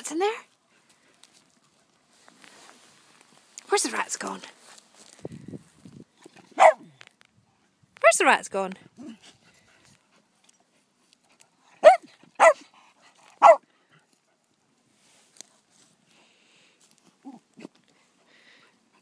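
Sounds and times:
small dog barking: 0:06.5 - 0:06.9, 0:11.8 - 0:12.7, 0:13.4 - 0:13.6.

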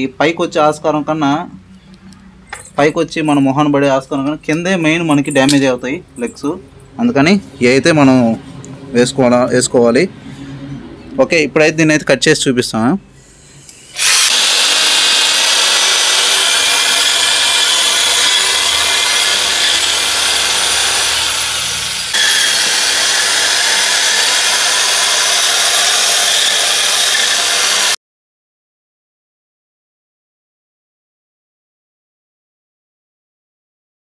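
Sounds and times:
electric drill cutting grass: 0:13.6 - 0:28.0.

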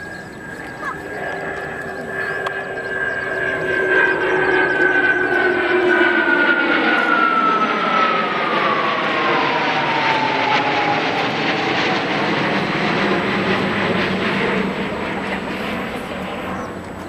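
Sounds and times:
jet whine sliding down in pitch: 0:00.0 - 0:14.3
jet engine roar: 0:00.0 - 0:17.0.

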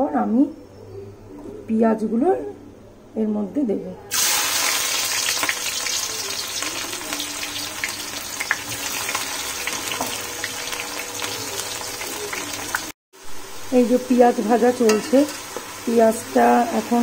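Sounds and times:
onions sizzling in hot oil: 0:04.1 - 0:17.0.

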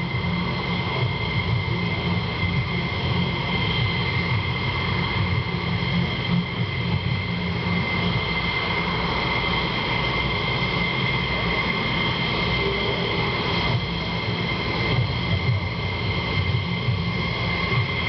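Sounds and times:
jet engines idling: 0:00.0 - 0:18.0.

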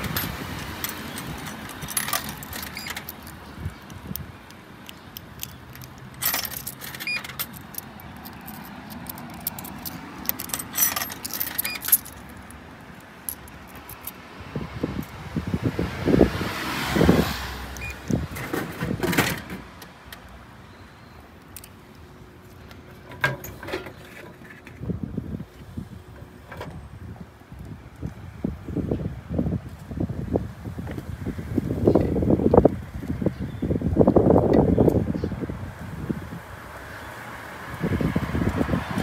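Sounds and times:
coins clinking into slot: 0:00.0 - 0:03.4, 0:05.4 - 0:12.3.

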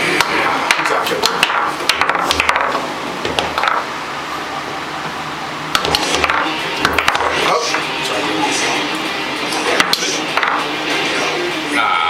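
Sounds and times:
foosball ball clacking: 0:00.0 - 0:03.9, 0:05.7 - 0:07.9, 0:09.6 - 0:11.3.

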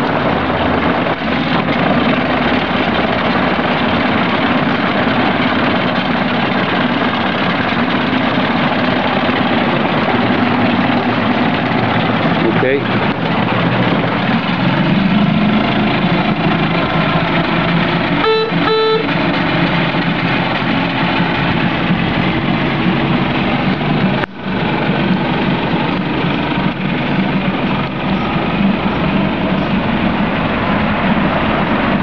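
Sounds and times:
outboard motor running: 0:00.0 - 0:32.0
boat horn beeps: 0:18.2 - 0:19.2.

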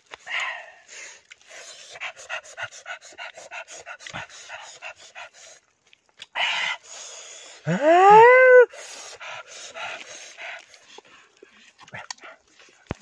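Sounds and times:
people chewing and lip-smacking: 0:01.2 - 0:04.8, 0:05.4 - 0:06.4, 0:09.5 - 0:13.0
man's drawn-out vocal cry: 0:07.7 - 0:08.7.

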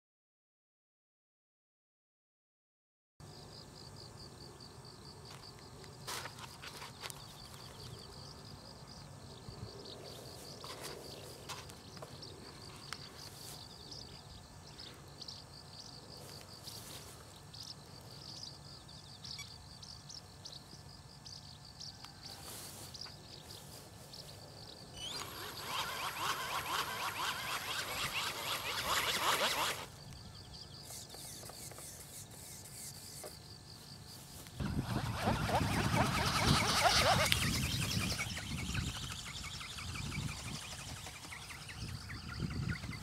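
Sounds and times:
motor and flapping wings whirring: 0:05.3 - 0:08.6, 0:09.7 - 0:14.2, 0:16.2 - 0:19.4, 0:21.7 - 0:43.0
thin high whine: 0:22.2 - 0:33.4, 0:34.1 - 0:43.0
high chirping: 0:34.6 - 0:43.0.

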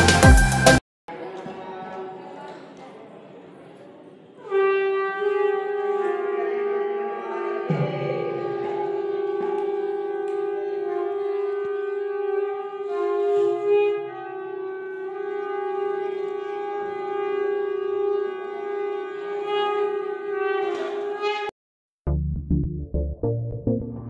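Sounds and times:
conch shell long note: 0:04.4 - 0:21.5.

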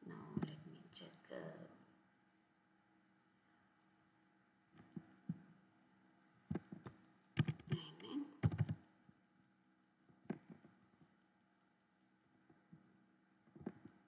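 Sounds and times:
keyboard typing: 0:06.5 - 0:08.8.

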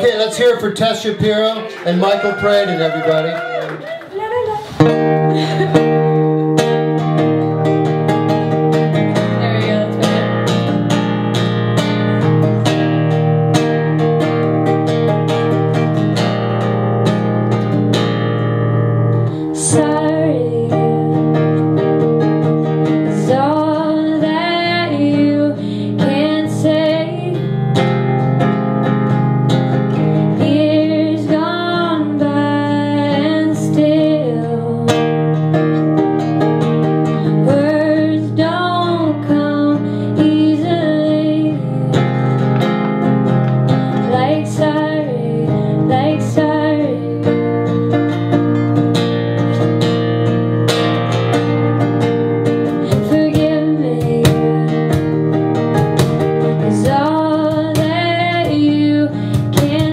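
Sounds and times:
acoustic guitar: 0:00.0 - 0:59.9
woman singing: 0:09.0 - 0:10.7, 0:19.4 - 0:21.9, 0:23.0 - 0:27.6, 0:30.3 - 0:35.2, 0:37.2 - 0:42.6, 0:43.7 - 0:47.8, 0:52.8 - 0:55.4, 0:56.5 - 0:59.9
cajon beat: 0:48.0 - 0:59.9.

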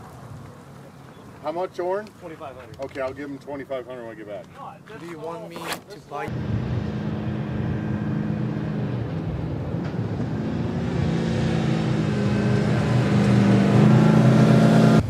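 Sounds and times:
truck engine approaching: 0:06.3 - 0:15.0.

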